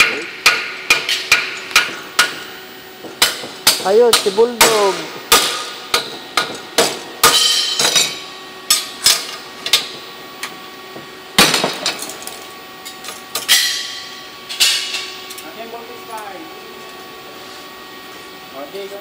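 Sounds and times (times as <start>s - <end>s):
hammer striking metal: 0.0s - 8.9s, 13.4s - 15.1s.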